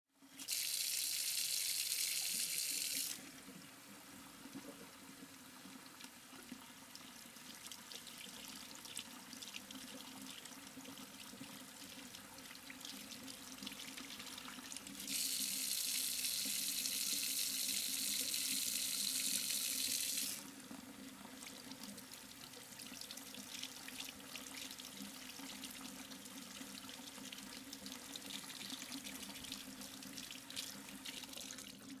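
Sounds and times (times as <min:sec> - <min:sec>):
water running into a tray: 0:00.4 - 0:03.2, 0:12.0 - 0:20.8.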